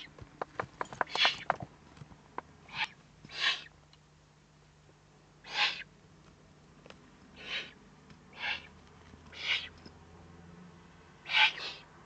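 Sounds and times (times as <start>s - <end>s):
owl chicks raspy begging calls: 2.7s - 3.8s, 5.4s - 5.9s, 7.4s - 9.8s, 11.2s - 11.9s.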